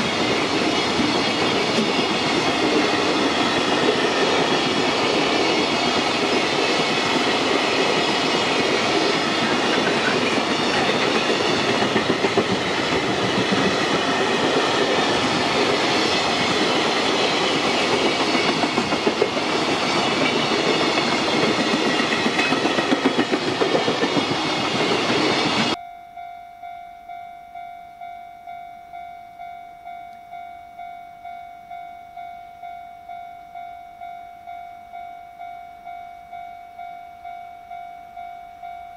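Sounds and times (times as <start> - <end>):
train wheels clattering over rail joints: 9.4 - 14.6, 15.6 - 25.8.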